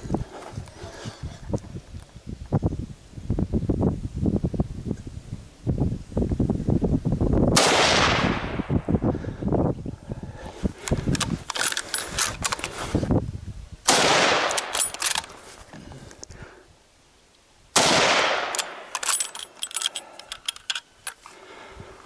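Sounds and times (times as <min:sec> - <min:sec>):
rifle shots echoing: 0:07.6 - 0:08.7, 0:13.9 - 0:15.0, 0:17.8 - 0:19.2.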